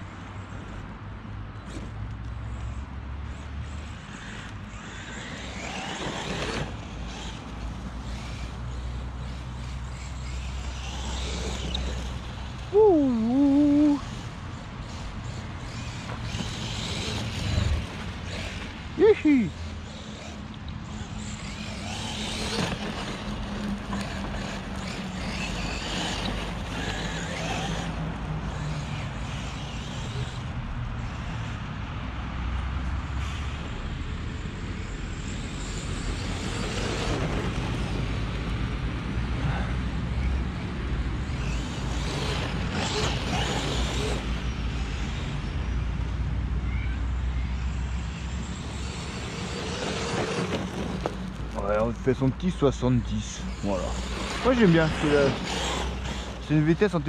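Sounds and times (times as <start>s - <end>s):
steady rushing noise: 3.2s - 46.4s, 47.8s - 57.0s
electric motor whining: 4.2s - 30.5s, 41.2s - 45.2s, 48.5s - 51.5s, 53.2s - 57.0s
low rumble on gravel: 50.0s - 52.4s.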